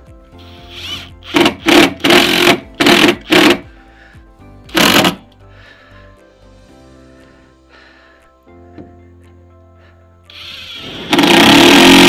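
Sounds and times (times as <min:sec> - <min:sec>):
background music: 0:00.0 - 0:12.0
impact driver driving screws: 0:00.5 - 0:03.6, 0:04.7 - 0:05.2, 0:10.3 - 0:12.0.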